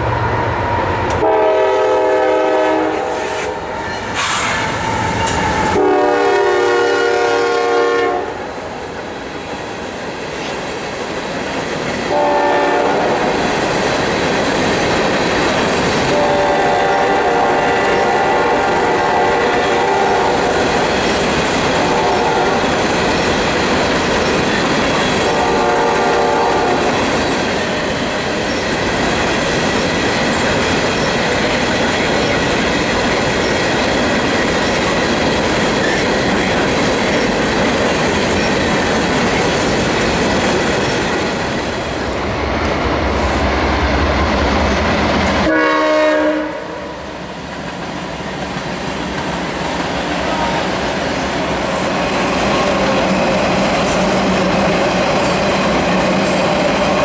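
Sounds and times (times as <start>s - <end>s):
train wheels rumbling on rails: 0.0s - 57.0s
train horn blasts: 1.1s - 8.5s, 12.1s - 13.4s, 16.1s - 20.4s, 21.8s - 22.6s, 25.2s - 27.0s, 45.3s - 47.2s.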